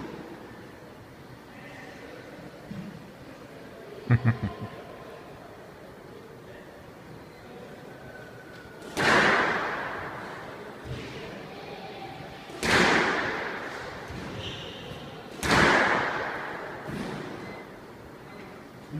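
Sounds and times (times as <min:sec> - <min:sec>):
squash ball cracks echoing: 0:08.8 - 0:10.3, 0:12.5 - 0:14.3, 0:15.3 - 0:17.3.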